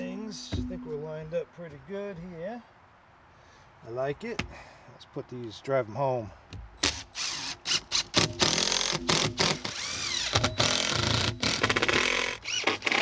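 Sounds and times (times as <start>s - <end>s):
impact driver hammering: 8.1s - 12.1s.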